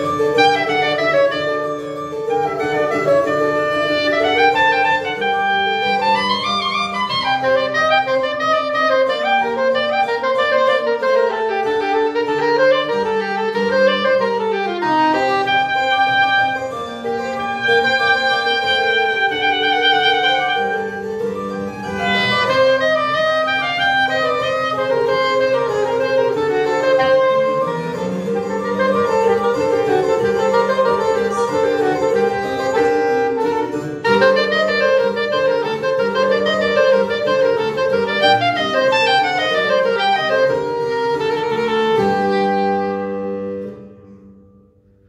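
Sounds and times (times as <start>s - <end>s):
soprano saxophone melody: 0.0s - 44.7s
low held accompaniment notes: 12.7s - 41.5s.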